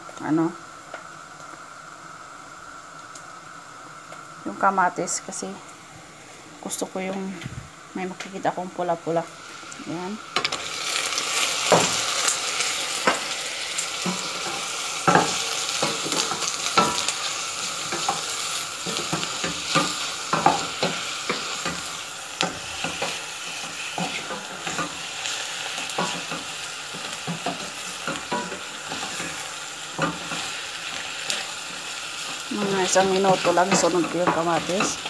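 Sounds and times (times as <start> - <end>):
chicken sizzling in oil: 9.0 - 35.0.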